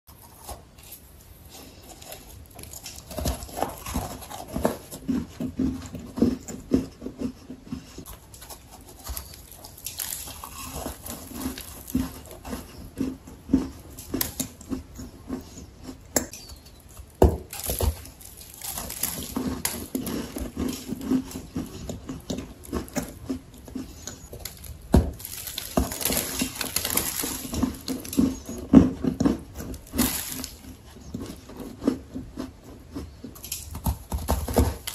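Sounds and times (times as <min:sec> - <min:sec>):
crunching dry clay: 0:00.1 - 0:34.9.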